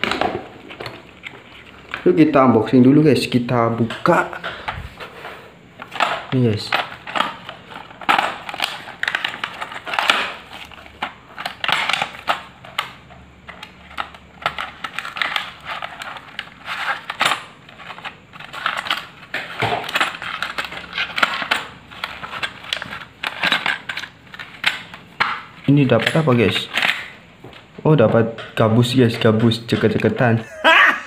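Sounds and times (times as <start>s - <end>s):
packaging crinkling and clicking: 0.0s - 2.2s, 5.8s - 27.7s.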